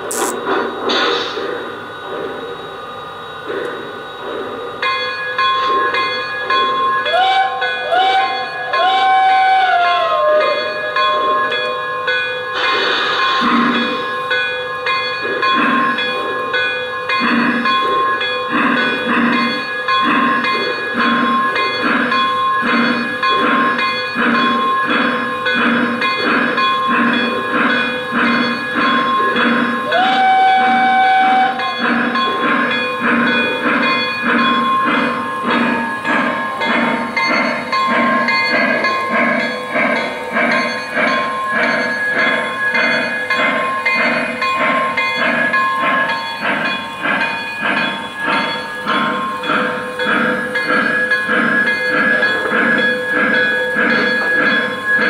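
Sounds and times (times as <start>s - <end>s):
steam hissing: 0.0s - 2.5s, 12.5s - 14.3s
model steam locomotive chuffing: 0.0s - 55.0s.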